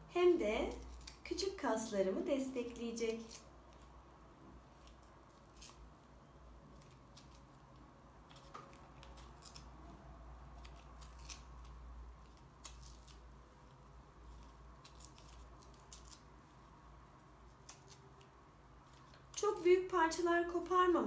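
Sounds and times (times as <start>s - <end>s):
paper tearing and crinkling: 8.3s - 9.8s, 10.6s - 13.3s, 14.3s - 16.3s.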